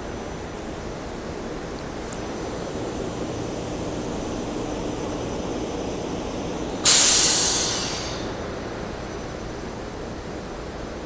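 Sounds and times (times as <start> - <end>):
electric railcar humming: 0.0 - 11.0
compressed air hissing: 2.0 - 8.6.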